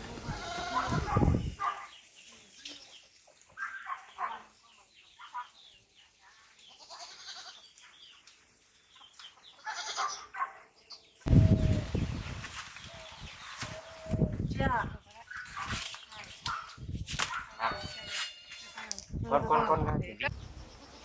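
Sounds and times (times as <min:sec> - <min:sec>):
livestock bleating: 0:00.3 - 0:01.1, 0:06.8 - 0:07.6, 0:09.6 - 0:10.3.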